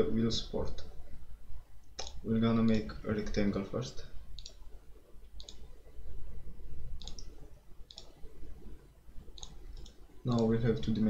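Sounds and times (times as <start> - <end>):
faint low hum: 0.0 - 11.0
computer mouse clicking: 1.8 - 2.2, 4.4 - 4.6, 5.2 - 5.7, 7.0 - 8.3, 9.3 - 10.6.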